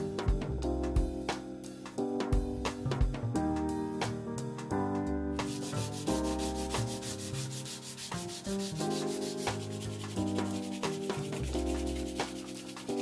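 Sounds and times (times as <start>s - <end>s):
background music: 0.0s - 13.0s
sandpaper rubbing on wood: 5.5s - 13.0s.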